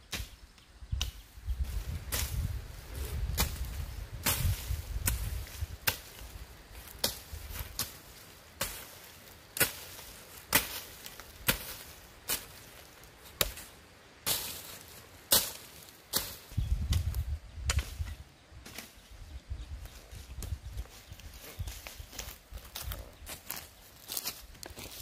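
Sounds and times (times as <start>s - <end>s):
hoe chopping into soil: 3.3s - 18.9s.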